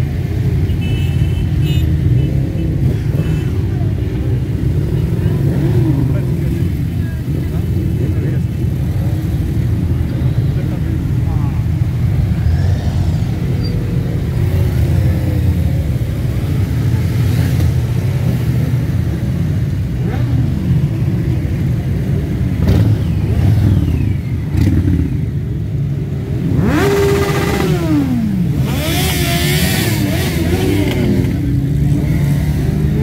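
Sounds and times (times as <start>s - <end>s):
motorcycle engines rumbling: 0.0s - 33.0s
motorcycle revving sharply: 22.4s - 25.4s, 26.2s - 33.0s.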